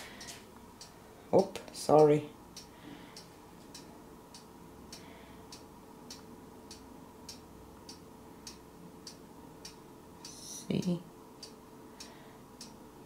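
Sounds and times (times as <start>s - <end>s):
faint ticking: 0.0s - 12.9s
low steady hum: 0.0s - 13.0s.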